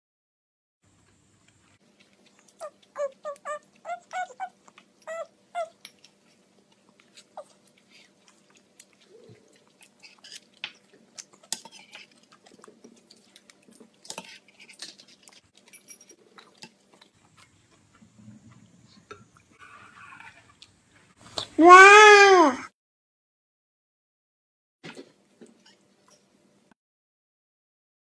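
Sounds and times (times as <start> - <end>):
toddler chewing: 1.8 - 15.4
spoon scraping metal bowl: 11.5 - 12.2.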